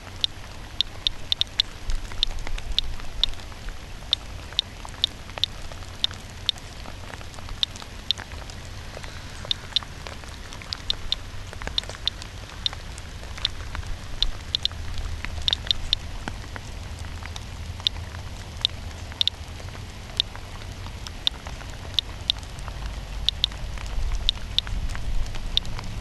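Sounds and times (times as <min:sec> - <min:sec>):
geiger counter clicking: 0:00.0 - 0:03.5, 0:04.1 - 0:06.6, 0:09.5 - 0:09.9, 0:10.6 - 0:12.8, 0:14.2 - 0:14.8, 0:15.4 - 0:16.0, 0:18.6 - 0:19.4, 0:21.2 - 0:22.4, 0:23.2 - 0:23.6, 0:24.2 - 0:24.7
light rain patter: 0:00.0 - 0:26.0.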